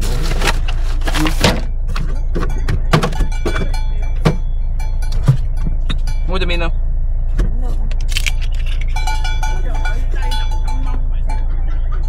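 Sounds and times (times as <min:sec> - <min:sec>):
steady low rumble: 0:00.0 - 0:12.0
camping gear knocking and clattering: 0:01.6 - 0:04.4.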